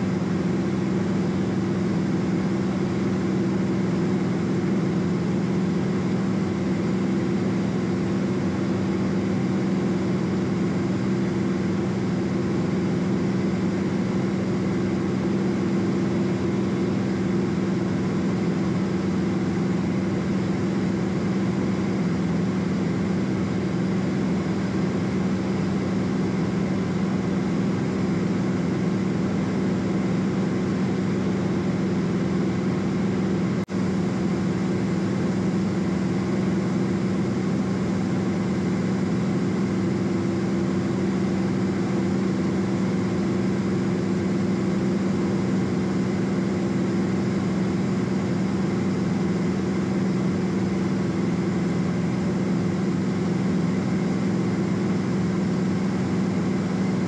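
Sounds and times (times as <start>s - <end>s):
aircraft engine and propeller hum: 0.0s - 57.0s.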